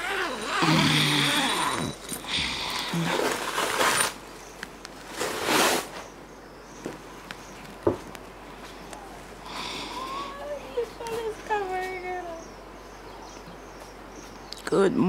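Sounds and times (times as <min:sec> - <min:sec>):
screen and curtain rustling on camera: 0:00.0 - 0:06.2.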